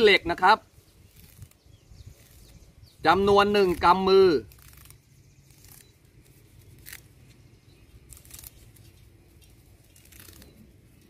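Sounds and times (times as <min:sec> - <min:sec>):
leaves snapping off twigs: 0:03.5 - 0:07.1, 0:08.0 - 0:10.6.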